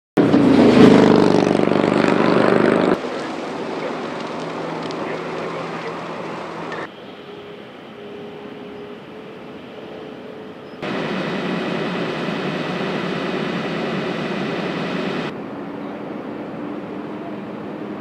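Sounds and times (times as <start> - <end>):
motorcycle engine passing: 0.2 - 3.0
steady rushing noise: 10.8 - 15.4.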